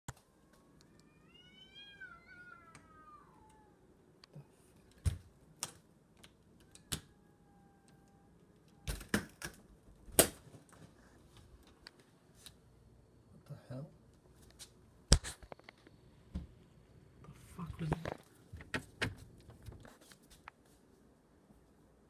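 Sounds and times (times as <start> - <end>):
cat yowling: 0.9 - 3.9, 6.7 - 8.9.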